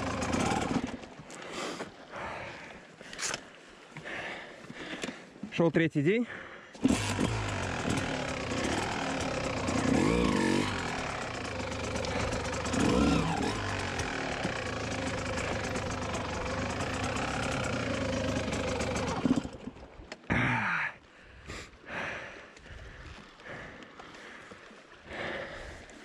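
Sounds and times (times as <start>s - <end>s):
dirt bike engine idling: 0.0s - 1.5s, 6.4s - 20.5s.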